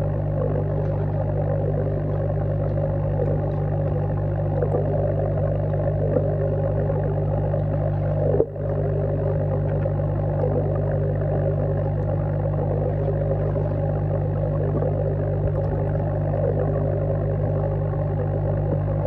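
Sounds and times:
air pump humming underwater: 0.0s - 19.0s
bubbles crackling: 0.0s - 19.0s.

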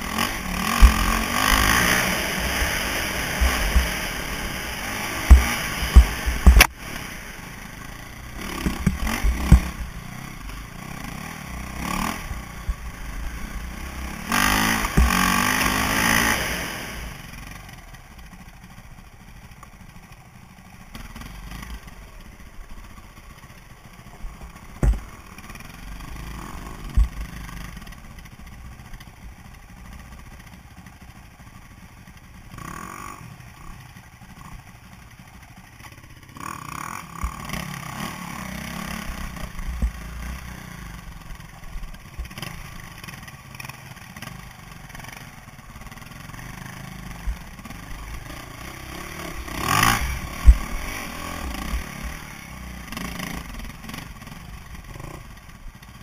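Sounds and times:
dirt bike engine revving: 0.0s - 17.6s, 23.8s - 27.8s, 32.5s - 33.8s, 36.2s - 41.6s, 42.2s - 56.0s
bike knocking over rocks: 24.8s - 25.2s.

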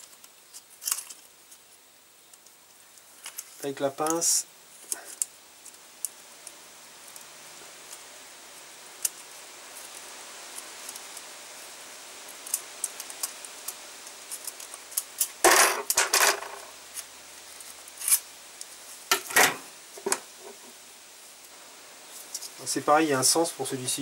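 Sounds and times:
metal clatter: 15.4s - 16.7s.

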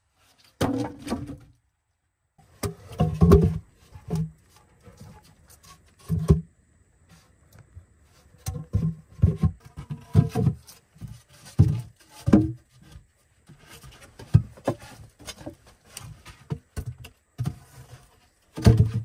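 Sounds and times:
wooden logs knocking together: 0.5s - 1.5s, 2.5s - 4.6s, 8.4s - 17.8s, 18.5s - 19.0s.

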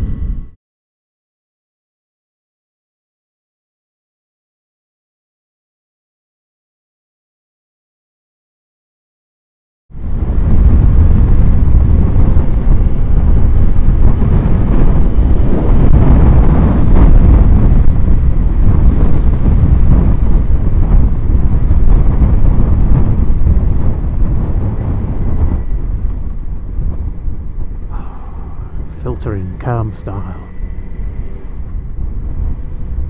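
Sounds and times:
wind buffeting microphone: 0.0s - 0.5s, 9.9s - 33.0s
road noise: 10.0s - 33.0s
motorcycle engine: 10.5s - 33.0s.

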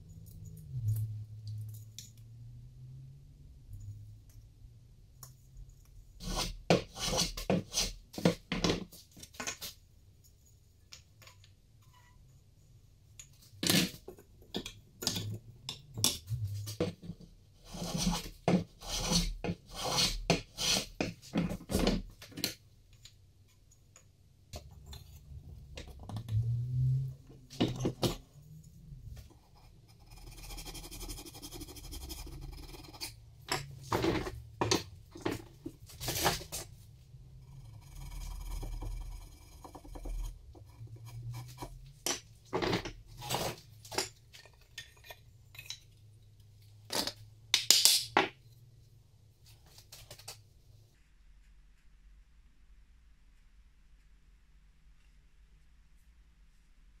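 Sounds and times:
file rasping on wood: 6.2s - 8.4s, 17.6s - 21.2s
wood-on-wood knocks and scrapes: 6.2s - 9.8s, 13.7s - 22.6s, 27.4s - 28.2s, 32.6s - 36.7s.

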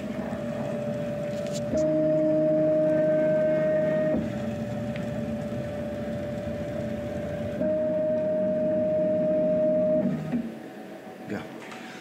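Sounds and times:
machine motors whining: 0.0s - 12.0s.

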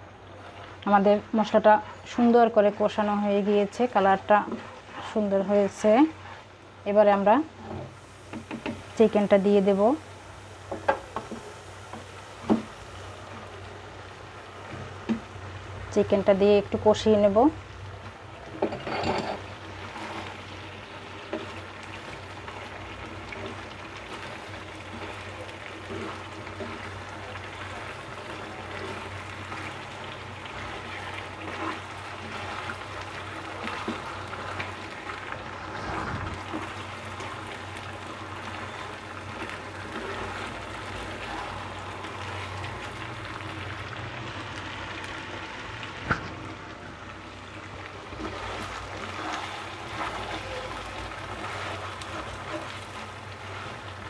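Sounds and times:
chicken sizzling in a pan: 8.0s - 16.2s, 19.4s - 46.2s, 47.3s - 54.0s
spatula scraping a pan: 30.9s - 32.8s.

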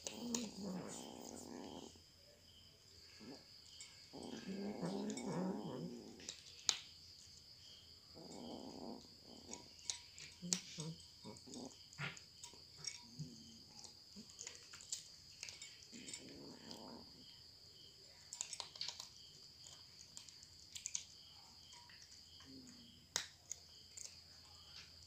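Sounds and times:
cats crunching dry kibble: 12.8s - 17.0s, 18.1s - 21.2s.

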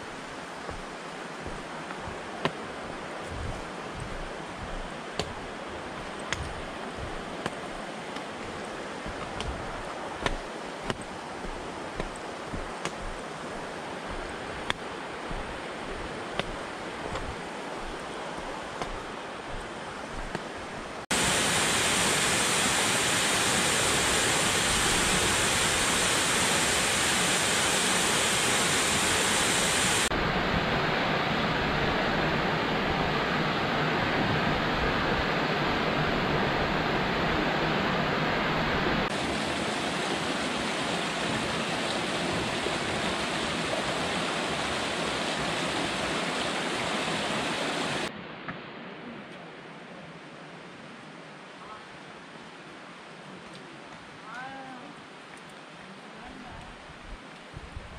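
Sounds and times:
running water: 0.0s - 48.1s
footsteps on stony leafy trail: 0.1s - 21.0s
waterfall pouring into pool: 21.1s - 30.1s, 39.1s - 48.1s.

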